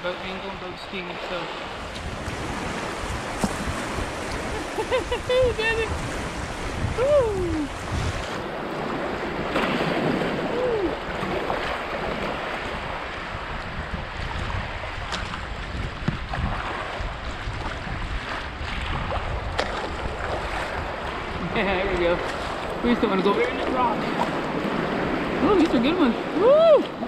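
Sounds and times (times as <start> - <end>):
river water rushing: 0.0 - 13.6, 19.8 - 27.0
wind buffeting microphone: 0.0 - 27.0.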